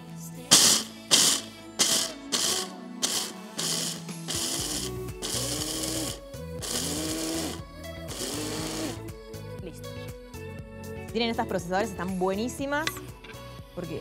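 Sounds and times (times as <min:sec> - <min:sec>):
food processor grinding nuts: 0:00.5 - 0:09.0.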